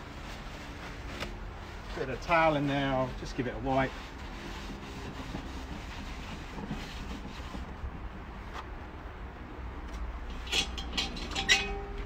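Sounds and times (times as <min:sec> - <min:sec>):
towel wiping a pan: 0:00.0 - 0:07.9.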